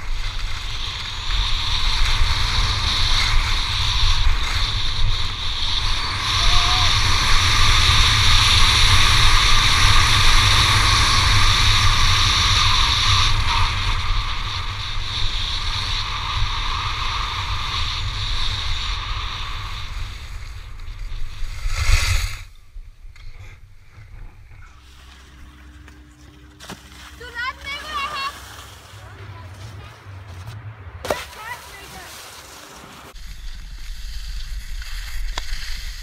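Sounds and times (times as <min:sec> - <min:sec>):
skis sliding on snow: 0:00.0 - 0:22.6, 0:24.8 - 0:36.0
wind rushing over microphone: 0:00.0 - 0:24.8.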